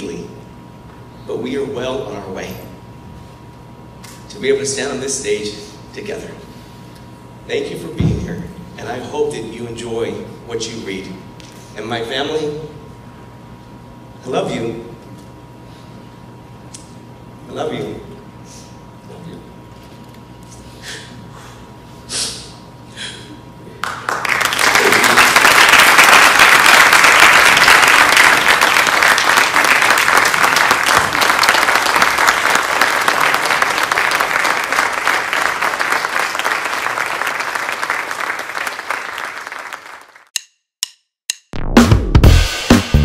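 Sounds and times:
audience applauding: 23.8s - 40.3s.

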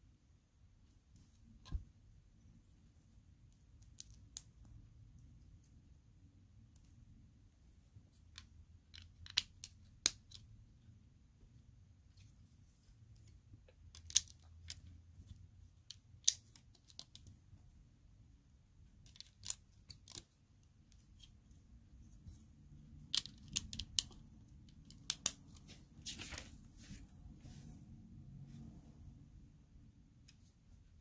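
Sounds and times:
plastic pieces clicking together: 3.7s - 4.6s, 8.3s - 10.5s, 13.7s - 15.0s, 15.8s - 17.4s, 19.0s - 21.3s, 22.9s - 25.5s.

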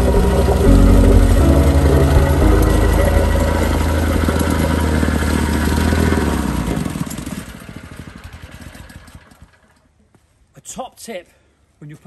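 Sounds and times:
plate compactor engine running: 0.0s - 9.6s.

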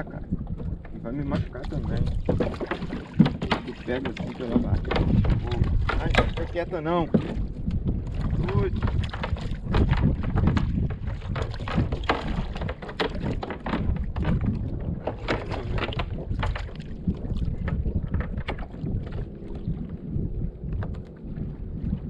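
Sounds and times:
wind buffeting microphone: 0.0s - 22.0s
knocks against kayak: 0.6s - 19.2s.

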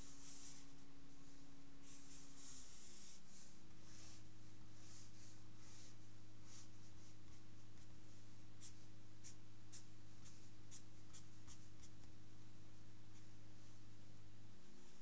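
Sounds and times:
steady low hum: 0.0s - 15.0s
pen scratching on paper: 8.6s - 12.1s.

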